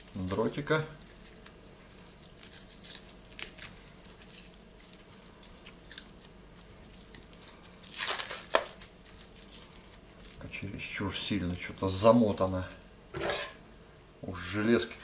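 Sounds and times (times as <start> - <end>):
plastic wrapping crinkling and tearing: 0.0 - 10.9.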